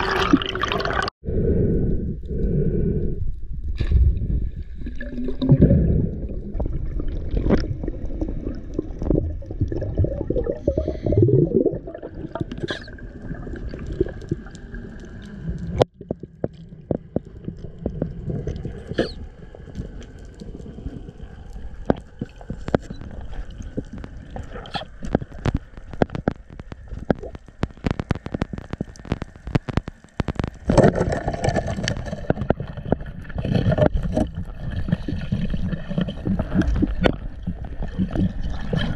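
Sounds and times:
muffled underwater movement: 0:00.0 - 0:38.9
sharp underwater clicks: 0:21.5 - 0:34.3.

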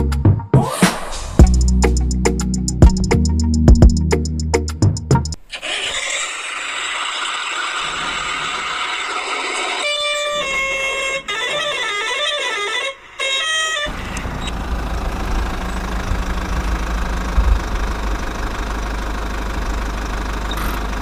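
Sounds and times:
engine-like low rumble: 0:13.9 - 0:21.0.

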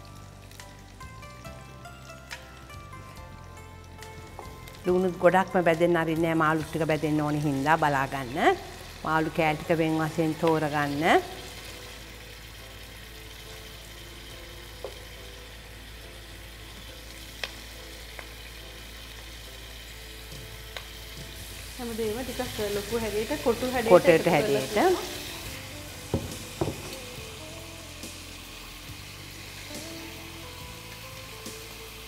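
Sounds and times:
food frying in a pot: 0:00.0 - 0:32.0
wooden spoon tapping a pan: 0:26.1 - 0:27.2.

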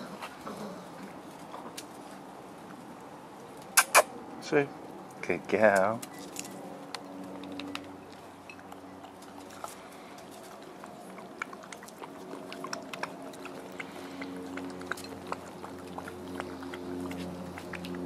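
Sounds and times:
puppies chewing and scuffling: 0:00.0 - 0:18.0
puppies lapping water: 0:06.8 - 0:18.0.

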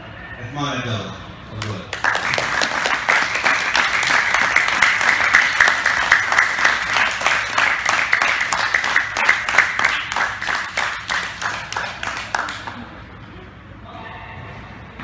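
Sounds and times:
crowd applauding: 0:01.9 - 0:12.9.

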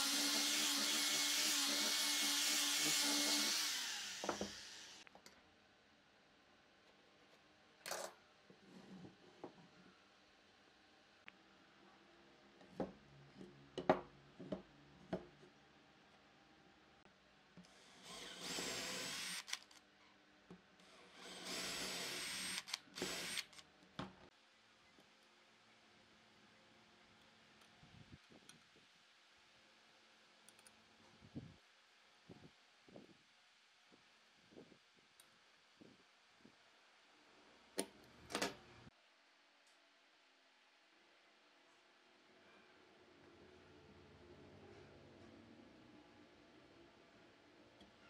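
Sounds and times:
angle grinder sanding wood: 0:00.0 - 0:05.0
cordless drill boring into wood: 0:00.0 - 0:05.0, 0:17.9 - 0:19.7, 0:21.1 - 0:23.6
drill knocking: 0:00.0 - 0:05.0, 0:21.2 - 0:23.6.

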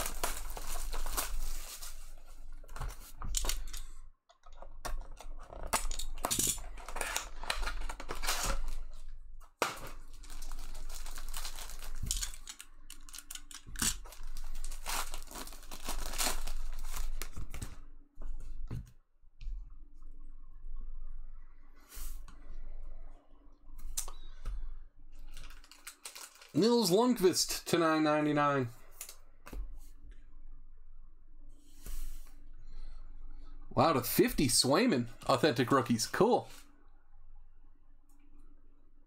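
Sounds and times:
wrapper crinkling and tearing: 0:00.0 - 0:02.3, 0:05.6 - 0:09.0, 0:09.8 - 0:17.8, 0:25.3 - 0:27.0.

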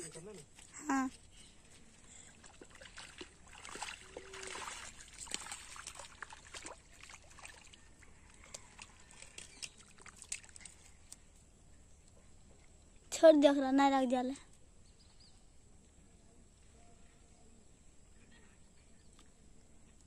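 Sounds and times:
fish splashing in water: 0:02.3 - 0:11.0.

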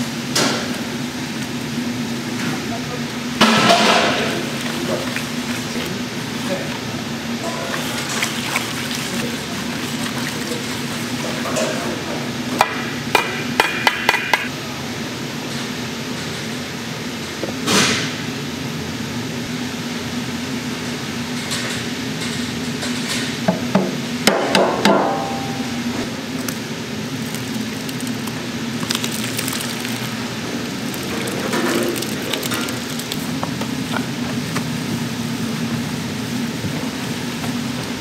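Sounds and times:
machine hum: 0:00.0 - 0:17.6, 0:25.0 - 0:38.0
utensils and containers clattering: 0:03.4 - 0:14.5, 0:26.4 - 0:34.3.

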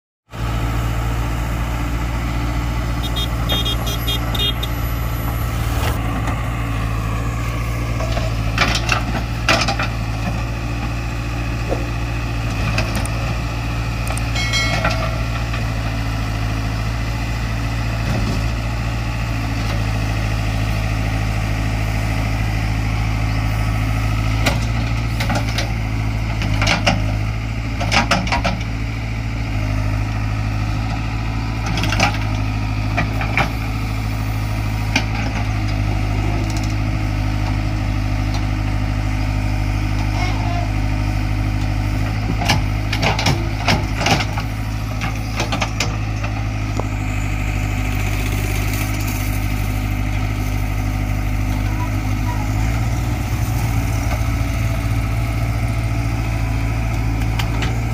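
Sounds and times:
diesel engine running: 0:00.3 - 0:57.9.

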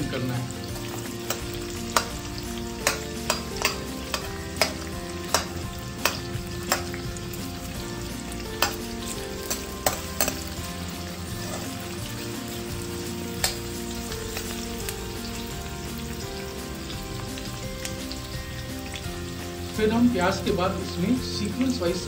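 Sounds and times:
onions sizzling in oil: 0:00.0 - 0:22.0
metal spoon clinking on pan: 0:00.9 - 0:07.1, 0:08.6 - 0:10.7, 0:11.4 - 0:11.8, 0:13.4 - 0:13.7.

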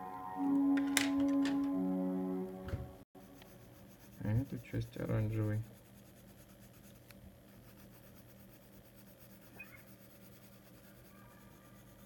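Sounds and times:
pencil scratching on paper: 0:03.2 - 0:12.0.

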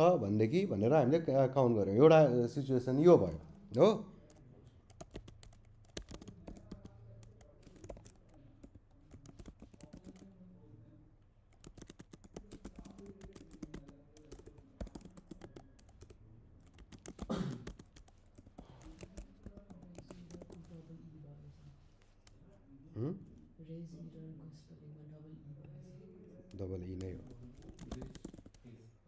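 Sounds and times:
typing on computer keyboard: 0:04.2 - 0:10.5, 0:11.5 - 0:20.8, 0:26.5 - 0:28.7.

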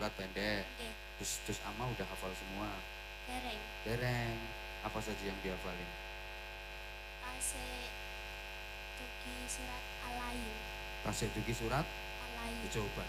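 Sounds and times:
mains hum and buzz: 0:00.0 - 0:13.0
faint voice speaking softly: 0:09.0 - 0:13.0.

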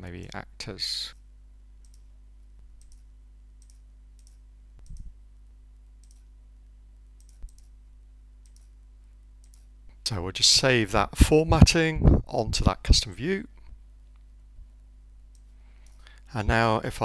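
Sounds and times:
low steady hum: 0:00.0 - 0:17.0
computer mouse clicks: 0:01.8 - 0:02.1, 0:02.8 - 0:05.1, 0:06.0 - 0:06.3, 0:07.2 - 0:07.8, 0:08.4 - 0:08.8, 0:09.4 - 0:09.7.

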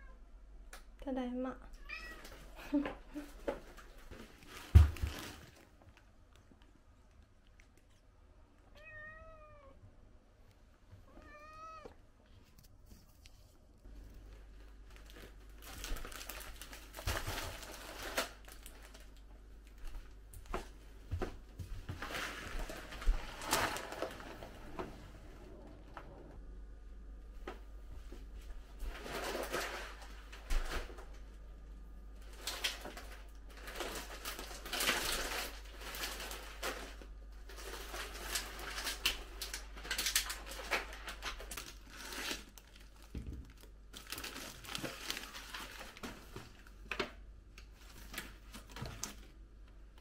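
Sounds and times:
plastic packaging rustling: 0:02.0 - 0:06.0, 0:13.0 - 0:21.2, 0:21.8 - 0:25.3, 0:28.2 - 0:31.3, 0:32.1 - 0:49.4.

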